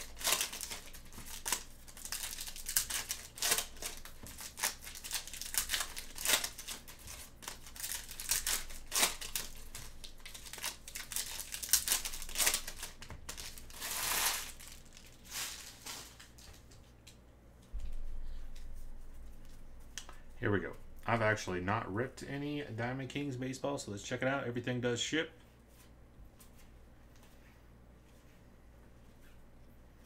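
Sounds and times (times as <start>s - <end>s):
foil wrappers crinkling: 0.0s - 17.0s.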